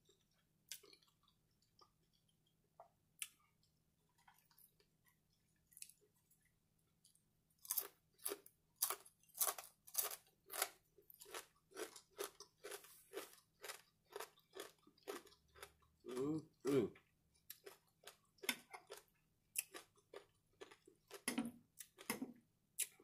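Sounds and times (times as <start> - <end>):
crunchy chewing of bacon: 0.1 - 2.5, 7.6 - 16.2, 17.4 - 22.1.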